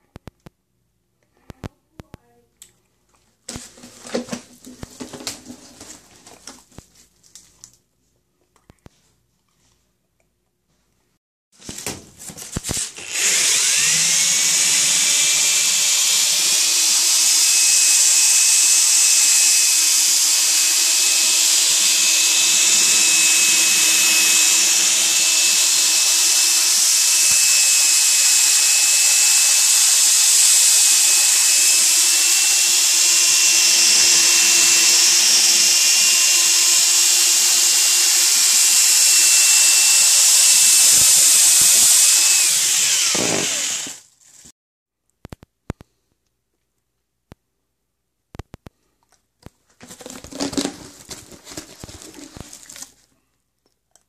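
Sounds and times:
power drill whining: 0:12.6 - 0:44.1
brush scrubbing foil duct: 0:49.8 - 0:53.0.

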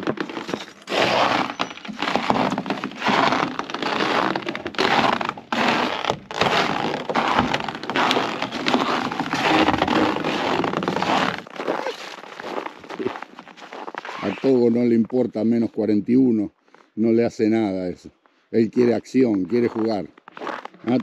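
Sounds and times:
boots crunching on snow: 0:00.0 - 0:14.7.

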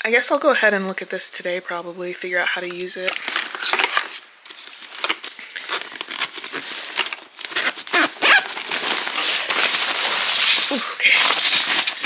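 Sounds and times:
rustling: 0:02.7 - 0:12.0
plastic parts clicking and rattling: 0:02.8 - 0:12.0.

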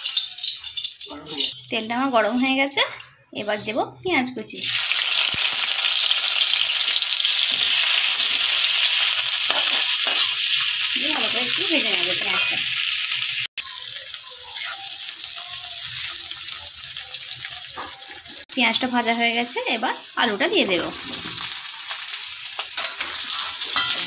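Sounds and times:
onions sizzling in hot oil: 0:00.0 - 0:03.5, 0:04.1 - 0:24.0.

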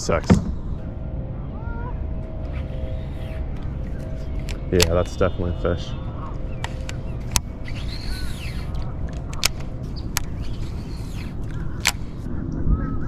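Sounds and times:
low rumble: 0:00.0 - 0:13.0
bird call: 0:05.0 - 0:11.8
sharp clicks: 0:06.3 - 0:12.3.

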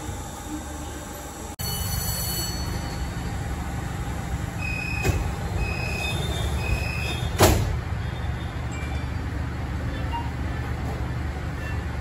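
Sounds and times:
standing train rumble: 0:00.0 - 0:12.0
sliding doors shutting: 0:04.6 - 0:07.9.

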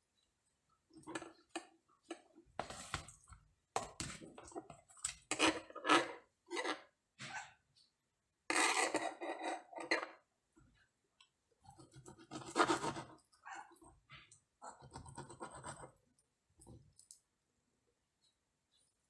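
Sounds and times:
scratchy rustling and scraping: 0:02.1 - 0:03.3, 0:11.7 - 0:13.3.

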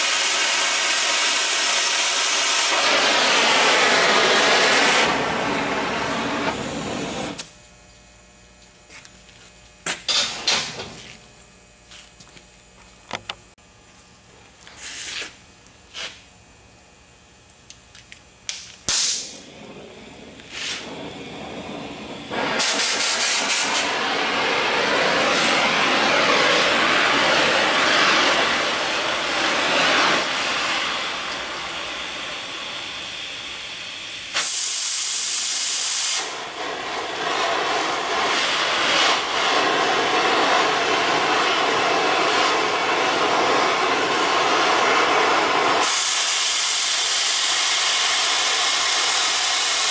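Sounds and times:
cutting torch hissing: 0:00.0 - 0:07.5, 0:10.0 - 0:11.1, 0:14.7 - 0:16.3, 0:18.5 - 0:49.9
torch pop: 0:00.0 - 0:07.6, 0:09.9 - 0:11.0, 0:18.5 - 0:32.2, 0:34.3 - 0:49.9.

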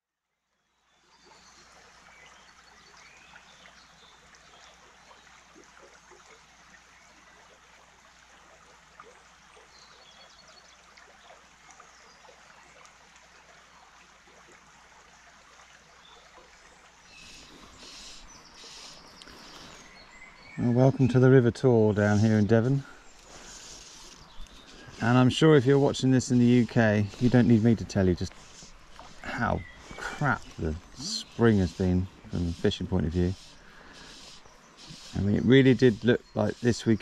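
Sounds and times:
shallow river flowing: 0:00.7 - 0:37.0
birds chirping: 0:16.0 - 0:37.0.

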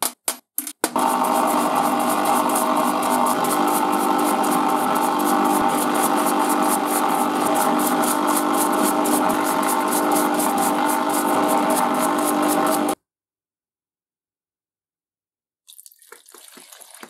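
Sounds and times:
brush scrubbing metal: 0:01.0 - 0:13.0
pump humming: 0:01.0 - 0:13.0.

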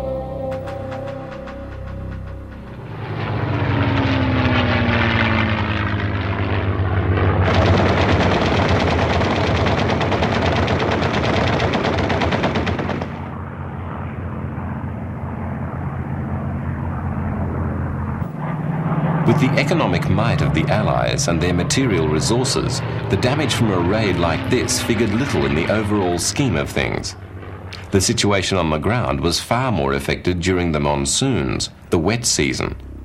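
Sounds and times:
aircraft engines droning: 0:00.0 - 0:33.0
rapid machine-gun fire: 0:07.4 - 0:13.3.

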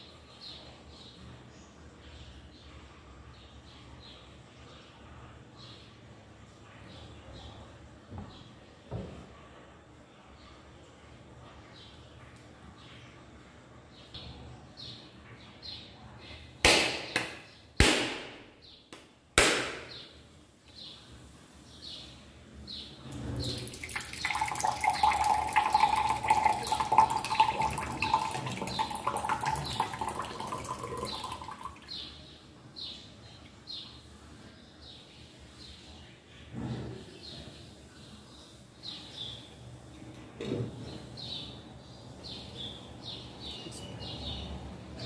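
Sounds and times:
bird chirping: 0:22.7 - 0:34.1
tap water running into vessel: 0:23.6 - 0:31.8.

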